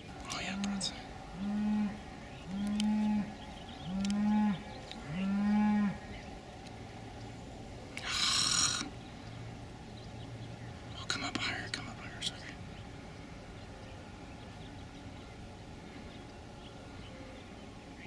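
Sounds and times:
faint low hum: 0.0 - 18.0
low animal calls: 0.1 - 6.4, 7.9 - 9.3.

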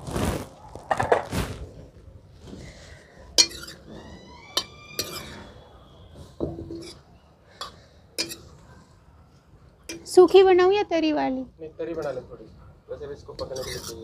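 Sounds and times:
metal ladle stirring in iron pan: 3.2 - 4.0, 4.6 - 5.6, 7.6 - 8.7, 13.4 - 14.0.

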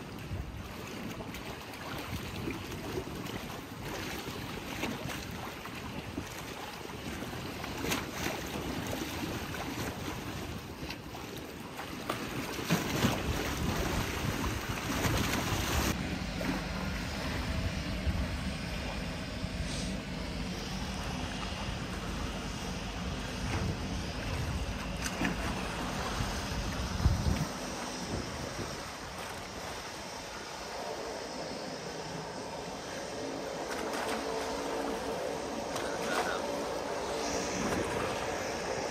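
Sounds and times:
wind buffeting microphone: 0.0 - 19.6, 21.1 - 30.6
low steady hum: 0.0 - 38.9
water lapping: 0.0 - 38.9.

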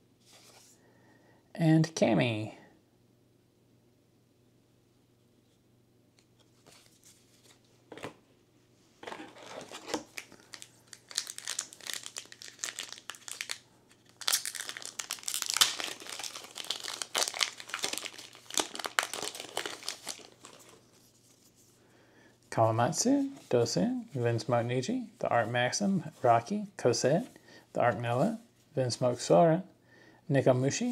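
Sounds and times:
plastic wrapper crinkling and tearing: 9.1 - 21.0.

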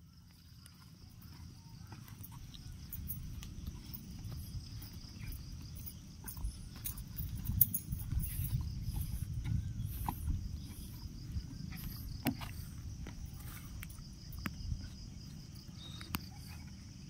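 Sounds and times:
insects trilling: 0.0 - 17.0
footsteps on wooden boards: 5.6 - 14.0.

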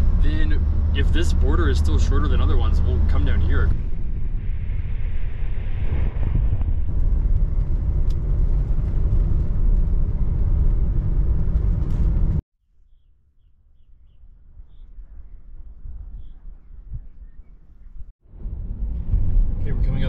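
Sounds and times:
van engine and road noise: 0.0 - 5.1, 5.8 - 12.4, 18.2 - 20.0
faint outdoor background: 12.5 - 20.0.

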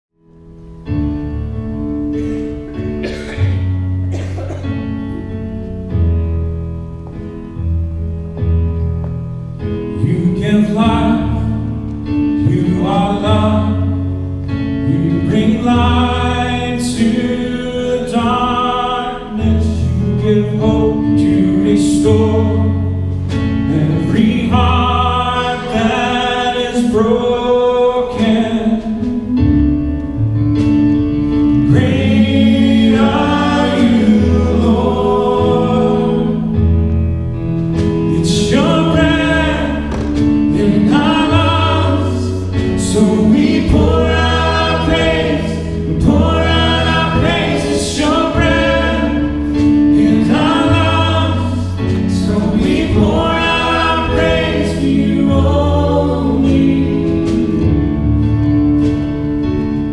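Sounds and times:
sustained bass notes: 0.1 - 59.9
keyboard: 0.2 - 59.9
man singing: 9.9 - 14.0, 14.7 - 29.6, 31.6 - 36.6, 38.0 - 57.8.

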